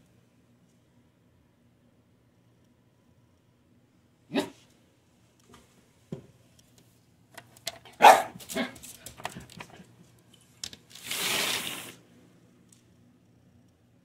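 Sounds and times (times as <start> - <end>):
dog barking: 4.3 - 4.6, 8.0 - 8.8.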